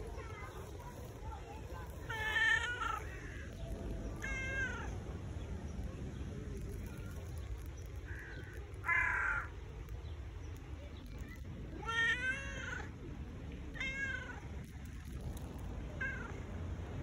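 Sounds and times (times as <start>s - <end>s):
cat meowing: 2.0s - 3.5s, 4.2s - 5.0s, 11.7s - 12.9s, 13.7s - 14.5s, 16.0s - 16.4s.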